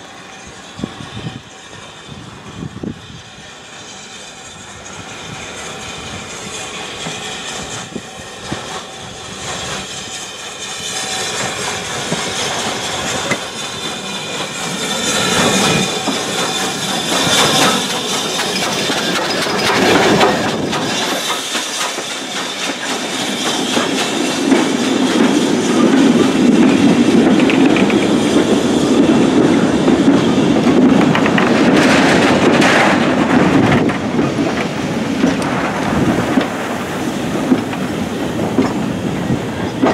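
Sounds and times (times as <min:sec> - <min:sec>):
steam hissing: 0:00.0 - 0:39.9
steam locomotive passing: 0:00.0 - 0:39.9
wagons rumbling: 0:14.1 - 0:39.9
wagon wheels clacking over rail joints: 0:15.3 - 0:38.9, 0:39.6 - 0:39.9.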